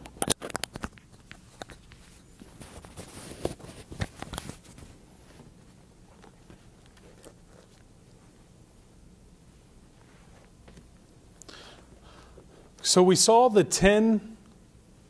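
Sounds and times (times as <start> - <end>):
handling rustles and clicks: 0.0 - 8.4.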